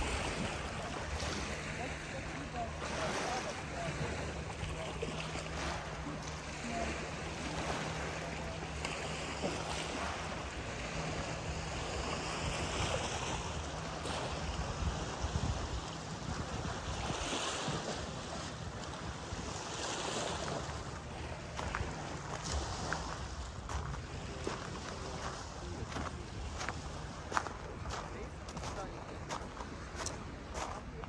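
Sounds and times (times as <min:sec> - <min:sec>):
lapping water: 0:00.0 - 0:14.5
boat engine running: 0:00.0 - 0:31.0
wind noise on microphone: 0:14.0 - 0:19.5.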